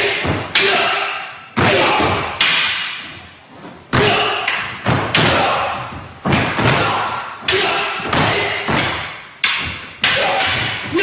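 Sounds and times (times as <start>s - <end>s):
wooden weapons clacking: 3.9s - 11.0s.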